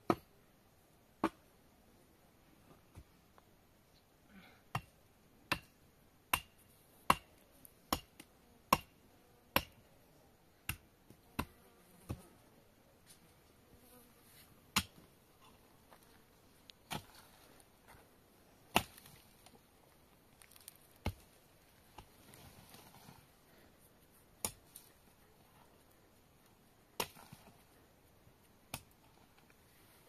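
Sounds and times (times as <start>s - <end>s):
pickaxe striking stony earth: 14.7s - 15.1s, 16.8s - 17.4s, 18.7s - 19.4s, 20.4s - 21.3s, 24.4s - 24.9s, 27.0s - 27.5s, 28.7s - 29.0s.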